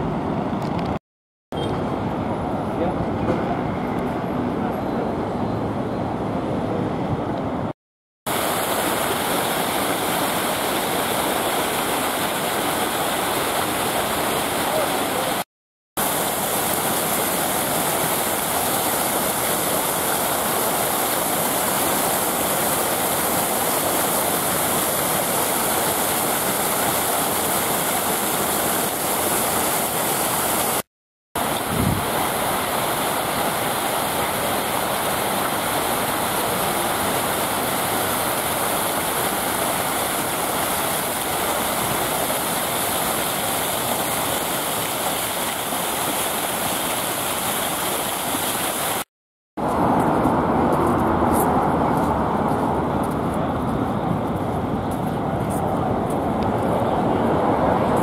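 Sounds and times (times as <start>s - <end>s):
fountain jets splashing into basins: 8.3s - 49.1s.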